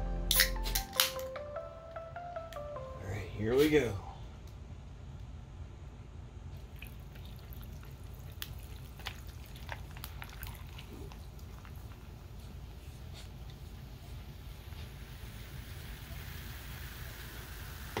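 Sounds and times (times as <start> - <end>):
low steady hum: 0.0 - 18.0
soda pouring and fizzing: 6.6 - 12.8, 13.5 - 18.0.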